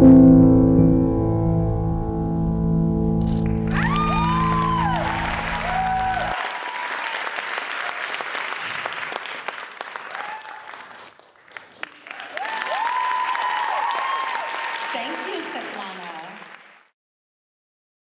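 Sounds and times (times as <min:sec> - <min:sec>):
solo piano music: 0:00.0 - 0:06.1
audience applauding: 0:03.3 - 0:16.9
audience cheering with whoops: 0:03.5 - 0:08.4, 0:10.0 - 0:10.8, 0:12.0 - 0:16.3.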